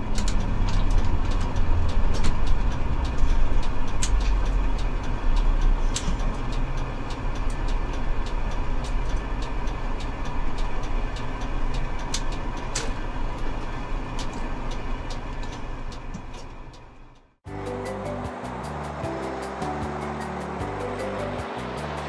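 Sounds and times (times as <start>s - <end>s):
bus engine running low: 0.0s - 22.0s
turn signal ticking: 0.0s - 22.0s
background music: 17.5s - 22.0s.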